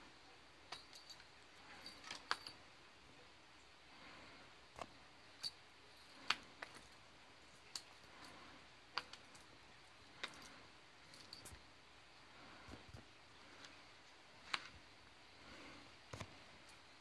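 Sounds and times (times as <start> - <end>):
sharp clicks and light taps: 8.9 - 9.5.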